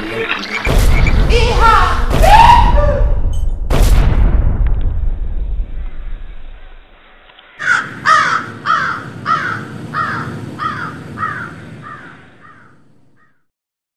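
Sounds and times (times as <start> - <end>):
crow cawing: 7.6 - 13.4.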